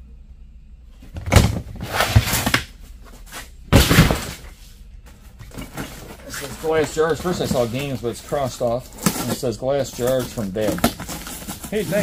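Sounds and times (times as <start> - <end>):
plastic tote scraping on concrete: 1.2 - 2.6, 5.5 - 12.0.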